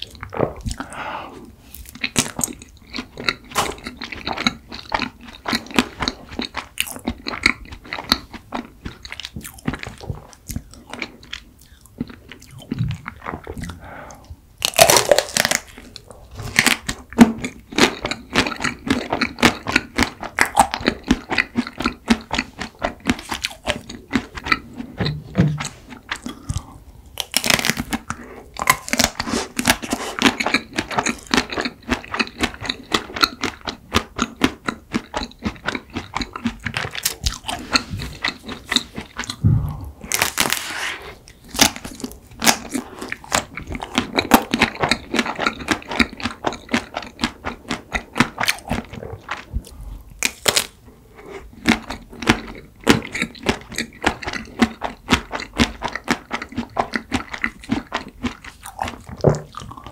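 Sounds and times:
chocolate coating crunching: 0:14.6 - 0:24.7, 0:25.6 - 0:39.4, 0:40.0 - 0:49.5, 0:50.1 - 0:50.8.

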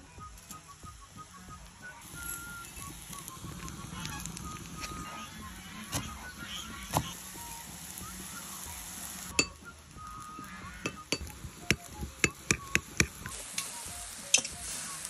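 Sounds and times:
metal spoon clinking ceramic bowl: 0:10.9 - 0:11.3.

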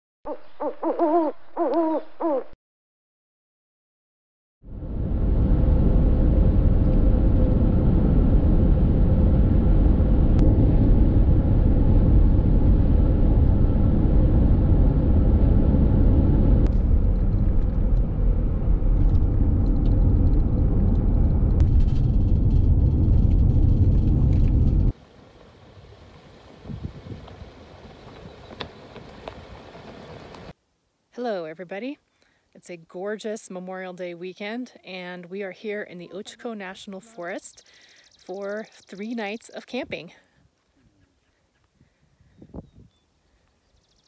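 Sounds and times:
car road and engine noise: 0:04.7 - 0:30.6.

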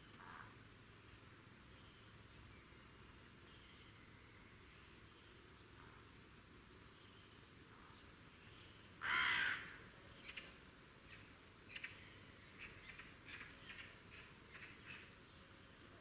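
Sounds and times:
loud harsh bird call: 0:09.0 - 0:09.8.

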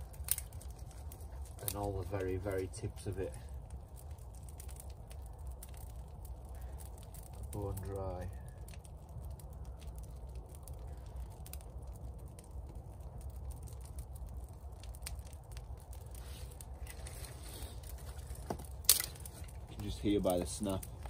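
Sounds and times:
dry twigs crackling: 0:00.0 - 0:21.0
low steady rumble: 0:00.0 - 0:21.0
twig snapping: 0:00.1 - 0:00.8, 0:18.2 - 0:19.6.

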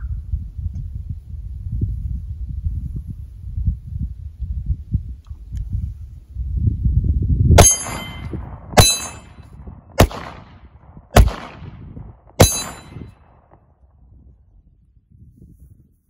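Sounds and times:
ringing clang of steel plate: 0:07.6 - 0:09.5, 0:12.4 - 0:13.2
pistol shots: 0:07.6 - 0:13.6.

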